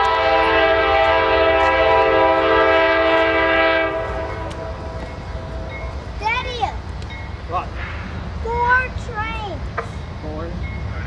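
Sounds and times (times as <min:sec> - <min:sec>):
locomotive air horn blast: 0:00.0 - 0:05.7.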